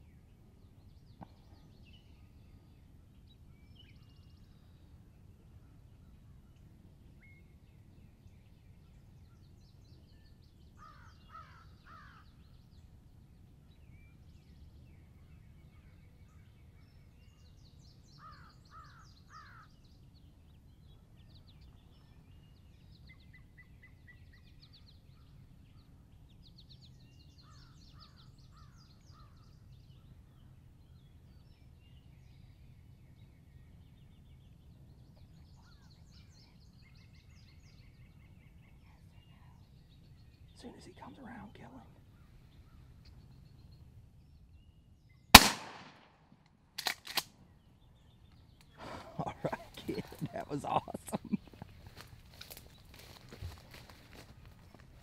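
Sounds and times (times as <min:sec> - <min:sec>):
songbirds chirping and trilling: 0:00.0 - 0:45.6, 0:46.4 - 0:55.0
faint low outdoor rumble: 0:00.0 - 0:55.0
crows cawing: 0:10.8 - 0:12.3, 0:18.2 - 0:19.7.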